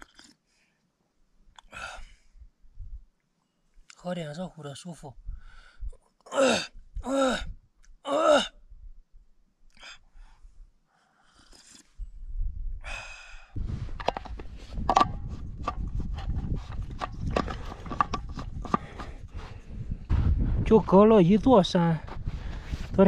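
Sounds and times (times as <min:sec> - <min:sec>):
man sighing: 0:01.6 - 0:02.4, 0:06.3 - 0:08.6
wind rumble on microphone: 0:02.7 - 0:03.1, 0:12.0 - 0:23.0.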